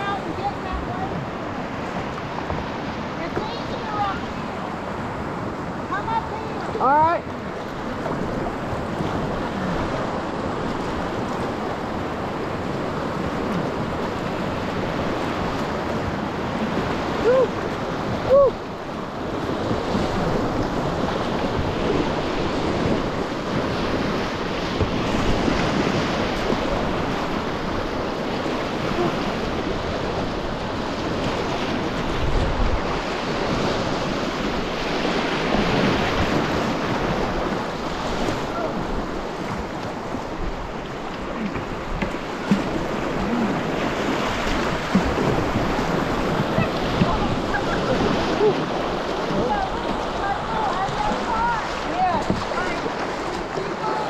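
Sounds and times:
river rushing through rapid: 0.0 - 54.0
wind on microphone: 0.0 - 54.0.

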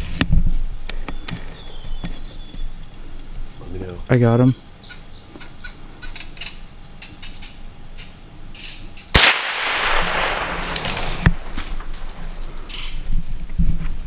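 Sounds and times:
rifle shot crack: 9.1 - 12.0
sharp snap: 9.2 - 11.7.

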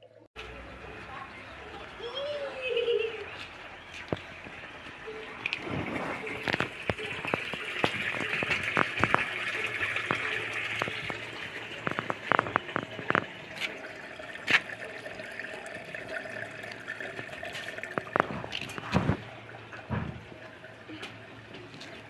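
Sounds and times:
water running and splashing: 2.6 - 22.0.

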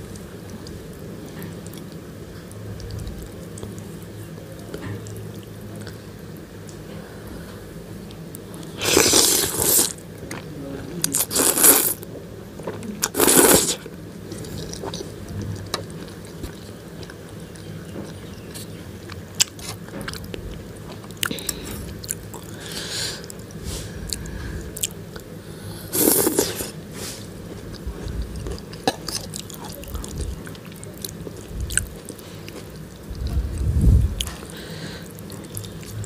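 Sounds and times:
noodle slurping: 8.8 - 10.0, 11.2 - 12.0, 13.1 - 13.8, 25.9 - 26.8
chewing: 27.5 - 33.4.

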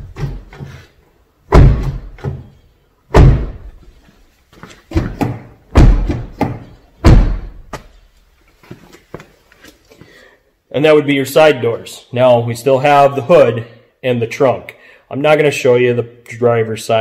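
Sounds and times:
car door slamming: 1.5 - 2.4, 3.1 - 3.7, 5.0 - 7.7.

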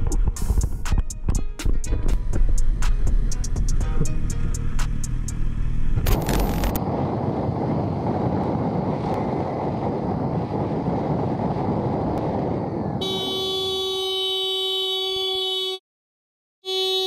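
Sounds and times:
wind buffeting microphone: 6.0 - 13.4.

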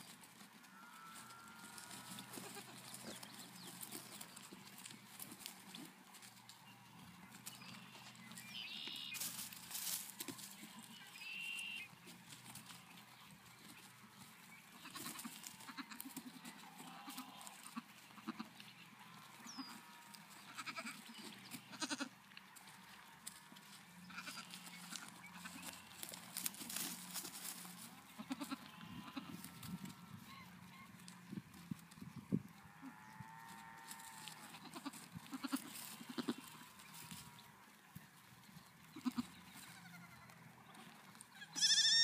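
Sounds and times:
small hooves on hay: 0.0 - 42.0
goat kids bleating: 0.6 - 5.5, 14.7 - 22.2, 22.9 - 31.1, 32.6 - 37.7, 38.8 - 42.0.

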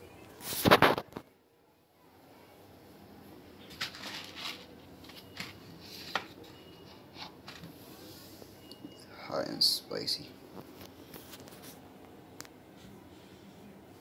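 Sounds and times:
paper bowl rustling and tapping: 3.7 - 6.6.

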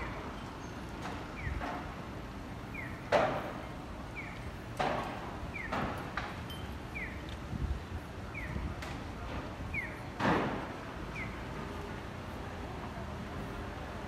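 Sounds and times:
sharp knocks: 3.1 - 3.6, 4.8 - 6.4.

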